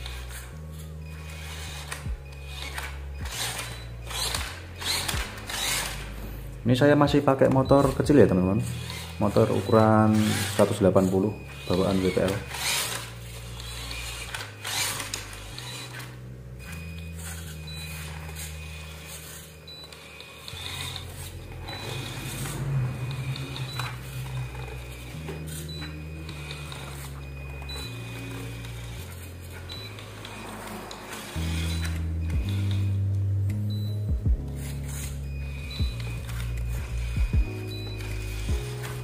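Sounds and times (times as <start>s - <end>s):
toy truck motor whining: 0.0s - 6.5s, 7.2s - 39.0s.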